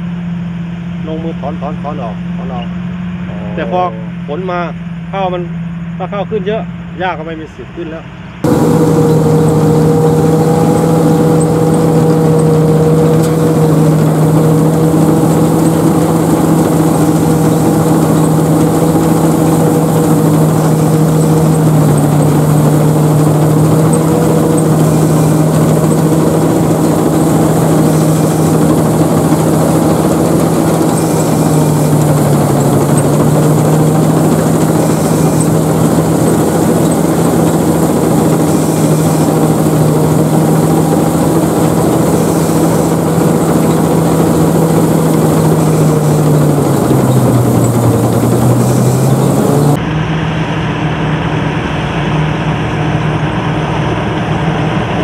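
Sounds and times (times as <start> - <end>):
diesel engine droning: 0.0 - 55.0
harvester machinery clatter: 8.4 - 49.8.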